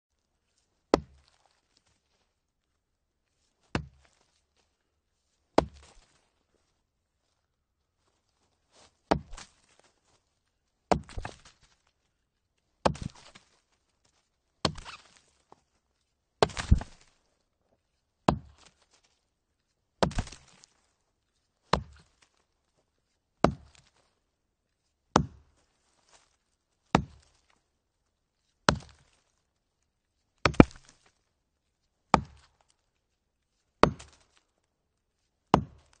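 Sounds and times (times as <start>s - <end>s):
axe chopping log: 0.9s - 1.4s, 3.7s - 4.1s, 5.6s - 6.1s, 9.1s - 9.6s, 10.9s - 11.5s, 12.8s - 13.4s, 14.6s - 15.2s, 16.4s - 17.1s, 18.3s - 18.8s, 20.0s - 20.6s, 21.7s - 22.1s, 23.4s - 23.9s, 25.2s - 25.5s, 26.9s - 27.4s, 28.7s - 29.2s, 30.4s - 30.9s, 32.1s - 32.6s, 33.8s - 34.4s, 35.5s - 36.0s.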